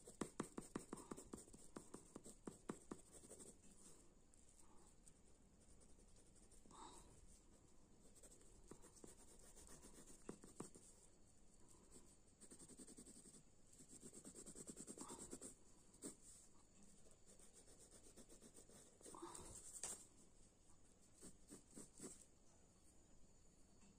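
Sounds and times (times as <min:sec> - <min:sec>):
pencil scratching on paper: 0:00.0 - 0:04.0, 0:05.6 - 0:11.0, 0:11.9 - 0:16.4, 0:17.0 - 0:20.0, 0:21.1 - 0:22.2.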